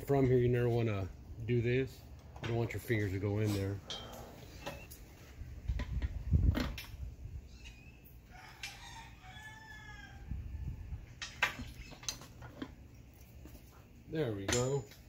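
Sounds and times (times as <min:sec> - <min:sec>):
rooster crowing: 0:08.2 - 0:10.8.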